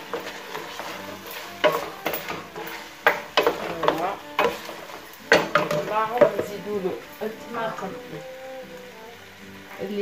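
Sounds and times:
wooden spatula scraping pot: 0.0s - 6.5s
chicken sizzling: 0.0s - 10.0s.

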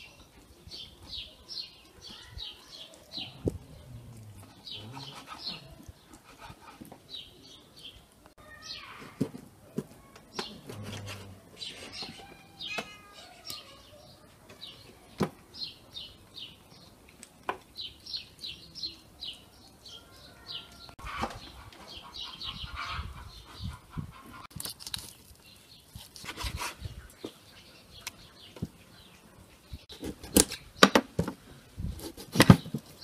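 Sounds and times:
birds chirping: 0.0s - 9.2s, 10.0s - 24.5s, 25.4s - 31.7s
falling bird calls: 1.1s - 9.2s, 10.0s - 17.0s.

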